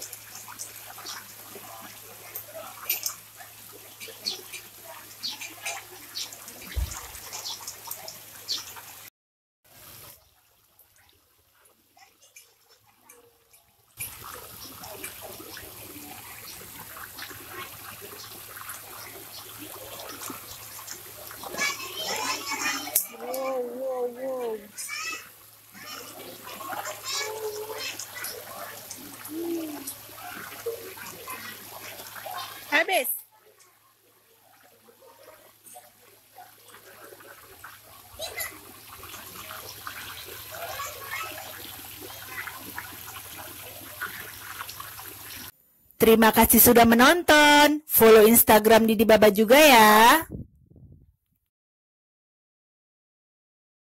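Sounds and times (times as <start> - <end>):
fish splashing at water surface: 14.0 - 23.5, 24.7 - 32.8, 34.4 - 45.5.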